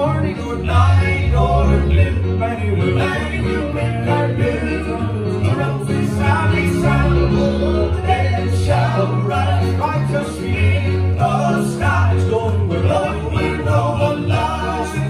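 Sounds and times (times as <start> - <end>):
keyboard accompaniment: 0.0 - 15.0
men singing in harmony: 0.0 - 15.0
sustained low bass notes: 0.0 - 15.0.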